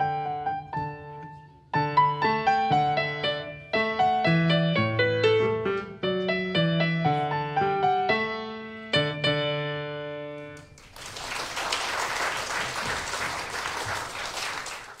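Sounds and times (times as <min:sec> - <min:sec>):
audience applause: 0:10.6 - 0:15.0.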